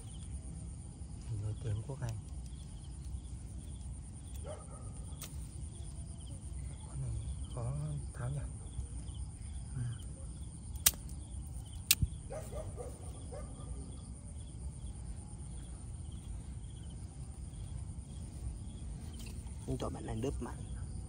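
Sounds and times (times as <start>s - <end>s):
crickets and insects chirping: 0.0s - 21.0s
sharp clicks: 10.7s - 12.2s.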